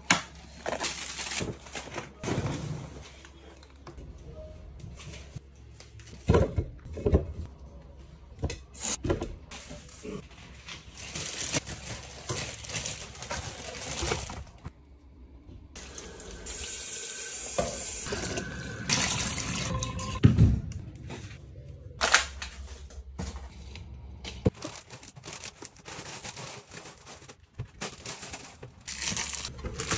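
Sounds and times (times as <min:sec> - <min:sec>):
plastic bag rustling: 0:09.7 - 0:14.7, 0:24.5 - 0:29.9.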